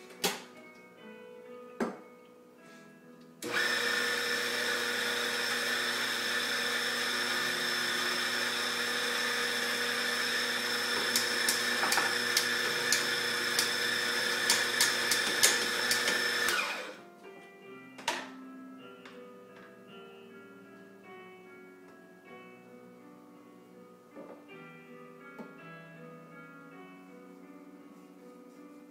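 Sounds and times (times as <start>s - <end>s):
coffee machine running: 3.4s - 17.0s.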